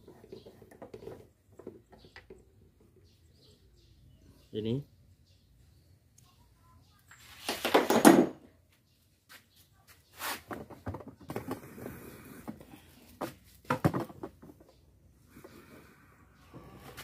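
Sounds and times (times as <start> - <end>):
rustling and scraping: 0.0 - 3.2, 9.2 - 17.0.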